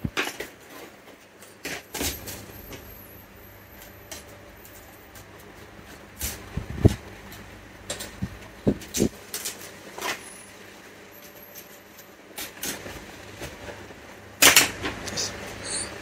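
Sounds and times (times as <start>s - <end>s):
clicks and knocks of handling parts: 3.8s - 10.2s.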